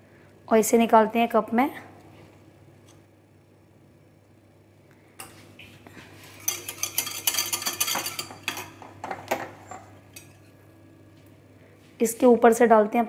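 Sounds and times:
metal spoons scraping: 6.4s - 8.8s
spoons clinking on cup and bowl: 6.4s - 8.9s.

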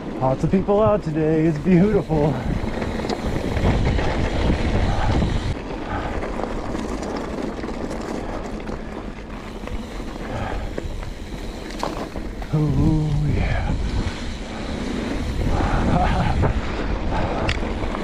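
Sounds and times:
bike rattle: 0.0s - 18.0s
bike tyre rumble on gravel: 0.0s - 18.0s
wind buffeting microphone: 0.0s - 18.0s.

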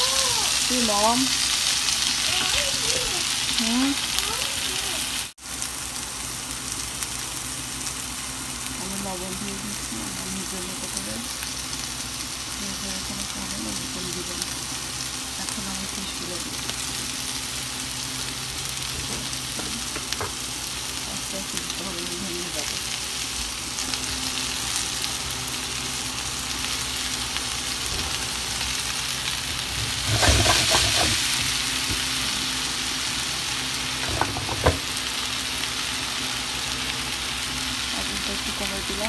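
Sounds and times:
fish frying in oil: 0.0s - 39.0s
spatula scraping a pan: 29.8s - 31.3s.

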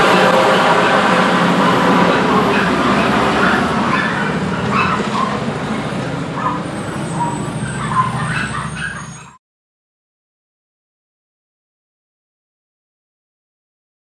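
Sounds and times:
garbage truck engine rumbling: 0.0s - 9.4s
dog yipping: 1.6s - 5.5s, 6.3s - 9.4s.

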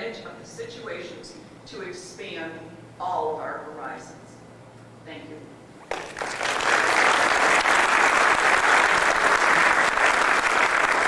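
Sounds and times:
audience applauding: 5.9s - 11.0s.

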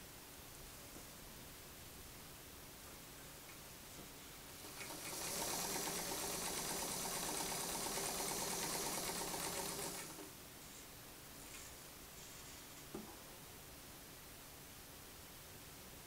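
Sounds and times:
sewing machine stitching: 4.6s - 10.3s.

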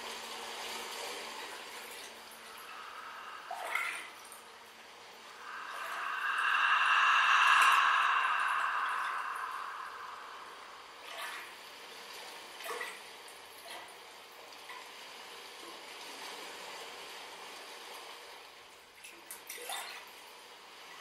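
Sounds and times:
faint steady hiss: 0.0s - 12.6s.

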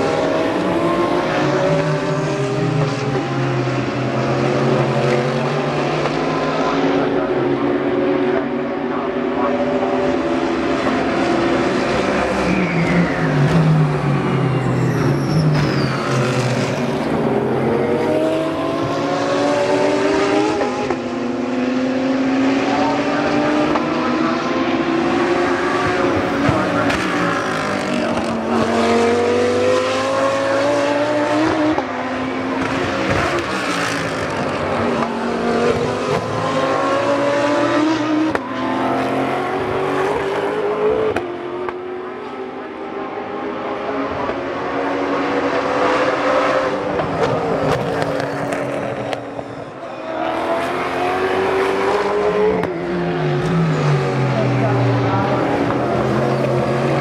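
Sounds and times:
race cars passing: 0.0s - 57.0s
race cars braking hard: 9.9s - 21.0s.

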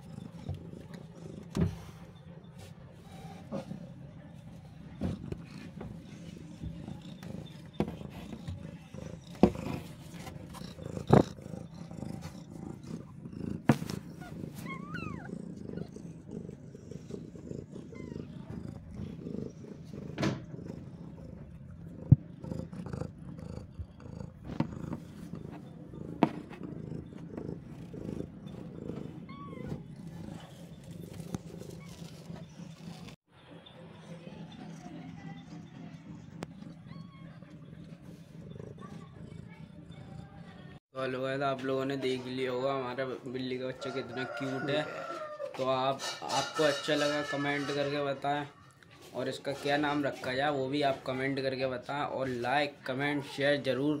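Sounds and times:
cat purring: 0.0s - 54.0s.

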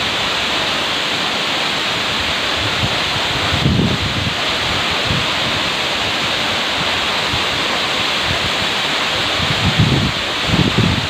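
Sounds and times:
waterfall crashing: 0.0s - 11.0s
wind buffeting microphone: 2.2s - 11.0s.

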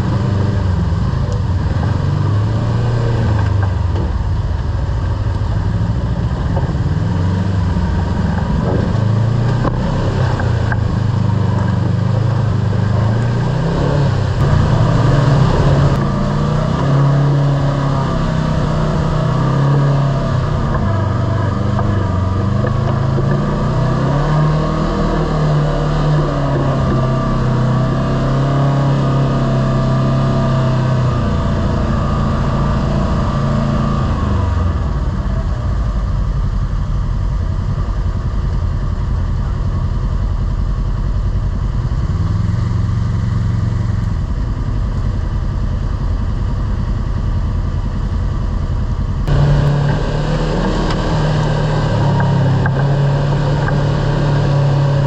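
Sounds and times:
driving noise rush: 0.0s - 55.0s
vehicle engine revving: 0.0s - 55.0s.

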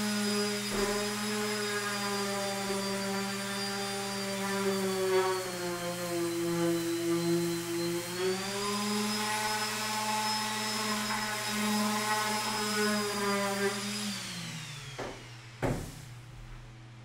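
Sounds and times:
electric sander whining: 0.0s - 16.0s
sander knocking on wooden bench: 14.9s - 16.1s.

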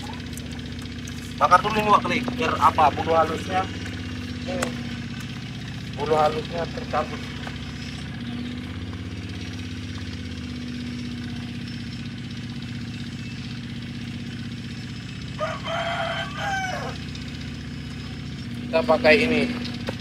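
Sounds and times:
small engine idling: 0.0s - 20.0s
rooster crowing: 15.2s - 17.2s.

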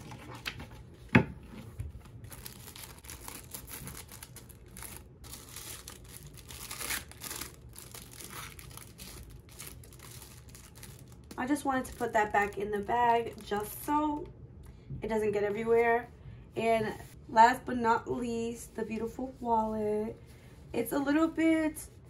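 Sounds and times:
paper envelopes rustling: 0.0s - 13.6s
plastic bag crinkling: 2.2s - 13.9s.

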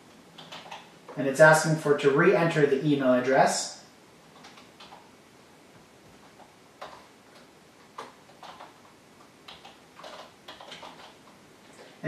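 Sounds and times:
typing on computer keyboard: 0.4s - 0.9s, 4.3s - 5.1s, 6.2s - 11.4s.

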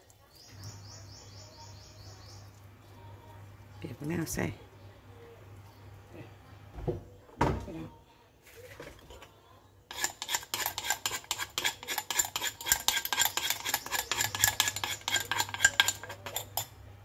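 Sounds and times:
metal spoon scraping: 9.9s - 16.8s.

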